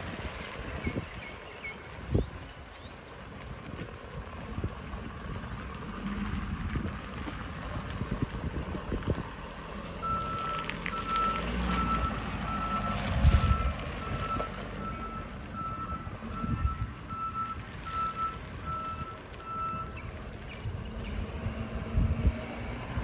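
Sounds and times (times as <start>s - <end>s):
diesel engine running: 0.0s - 23.0s
truck backup alarm beeping: 3.2s - 5.4s, 7.5s - 8.8s, 9.6s - 20.1s.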